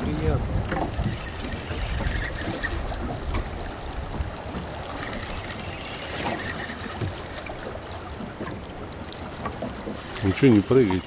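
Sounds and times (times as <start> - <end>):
wind on microphone: 0.0 - 7.8
fast-flowing river water: 0.0 - 11.0.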